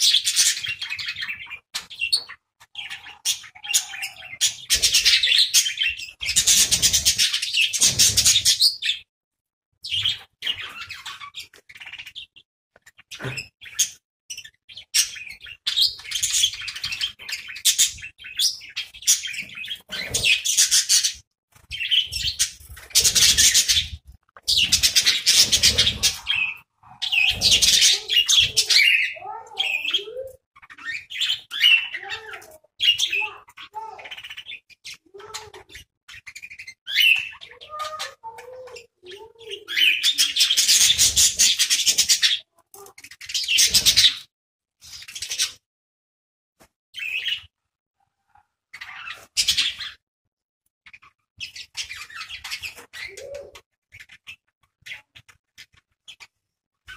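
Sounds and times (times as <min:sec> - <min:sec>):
budgerigars chattering: 0:13.1 - 0:32.2.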